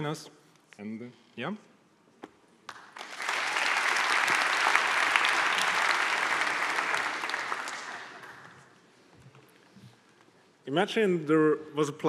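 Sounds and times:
audience applauding: 2.7 - 8.7.

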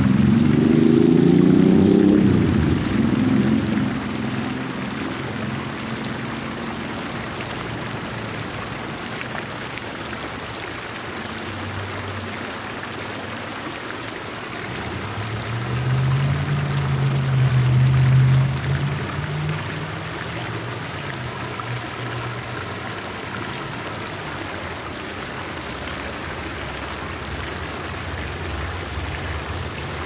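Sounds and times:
vehicle engine hum: 0.0 - 8.6, 14.6 - 30.0
fountain jets splashing: 0.0 - 30.0.

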